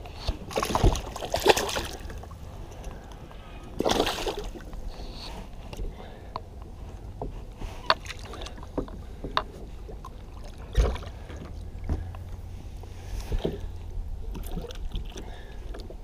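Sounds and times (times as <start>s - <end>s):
steady low rumble: 0.0s - 16.0s
water sloshing against kayak hull: 0.2s - 3.0s, 6.9s - 16.0s.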